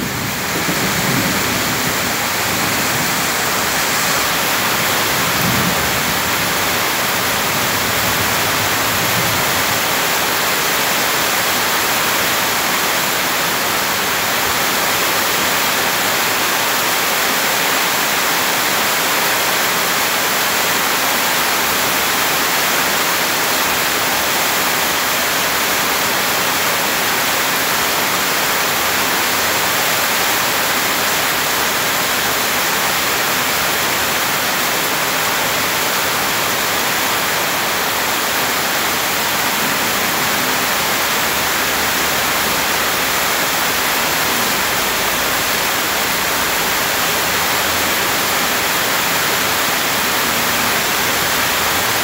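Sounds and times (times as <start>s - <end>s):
heavy rain on grass: 0.0s - 52.0s
rainwater pouring and splashing: 0.0s - 52.0s.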